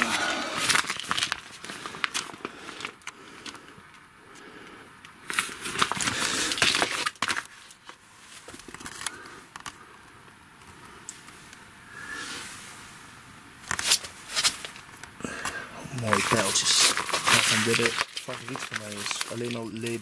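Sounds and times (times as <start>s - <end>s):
packaging rustling and crinkling: 0.0s - 4.0s, 5.2s - 9.8s, 13.6s - 20.0s.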